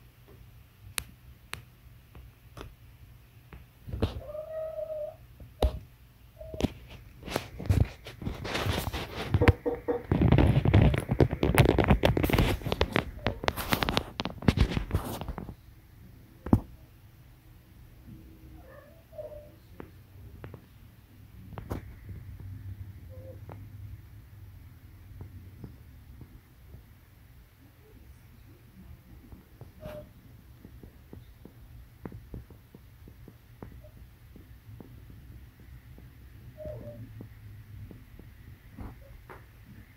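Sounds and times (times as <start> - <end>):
phone microphone handling noise: 6.4 - 15.6.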